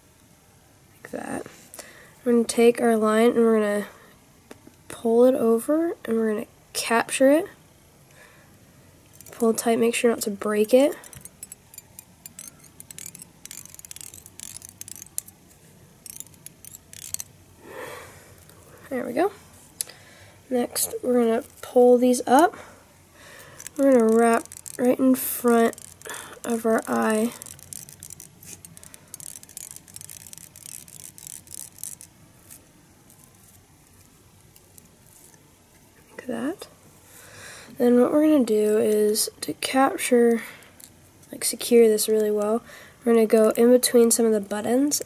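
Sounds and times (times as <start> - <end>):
fingers crackling stiff hair: 10.4 - 17.3, 23.5 - 35.4
thread pulled tight over stiff hair: 10.5 - 17.3, 23.4 - 35.4.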